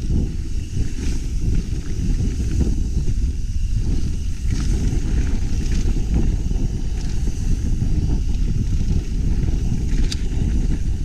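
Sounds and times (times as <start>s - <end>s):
wind buffeting microphone: 0.0s - 11.0s
faint bike clicks: 4.0s - 10.9s.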